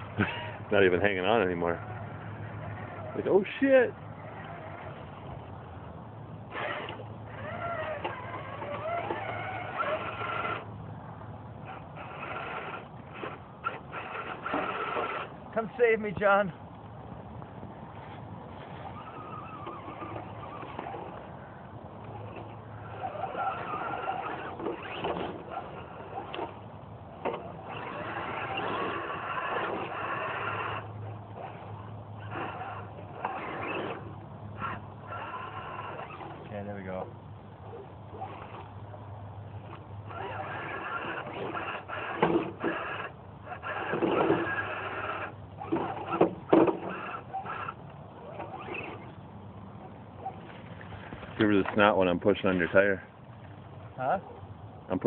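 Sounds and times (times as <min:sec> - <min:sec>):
toy truck electric motors whining: 0:00.1 - 0:05.4, 0:06.5 - 0:10.7, 0:11.6 - 0:15.4, 0:18.8 - 0:21.3, 0:22.0 - 0:36.5, 0:37.6 - 0:38.7, 0:39.6 - 0:49.2.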